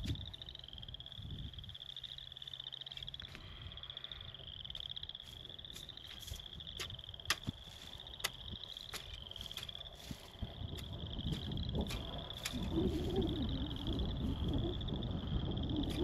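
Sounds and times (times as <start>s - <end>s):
frogs trilling: 0.0s - 16.0s.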